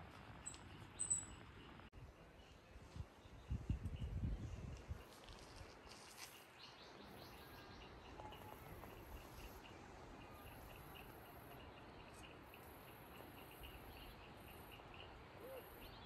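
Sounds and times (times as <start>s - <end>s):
bird calls: 6.6s - 16.0s.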